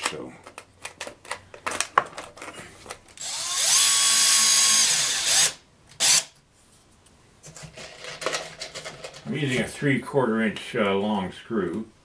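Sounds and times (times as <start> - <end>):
cordless drill driving screw into wood: 3.2 - 6.4.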